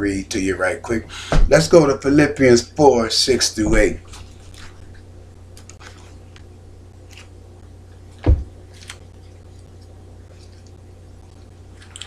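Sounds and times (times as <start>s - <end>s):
steady low hum: 0.0s - 12.0s
loud thump: 1.3s - 1.6s, 8.2s - 8.5s
book pages rustling: 3.8s - 7.3s.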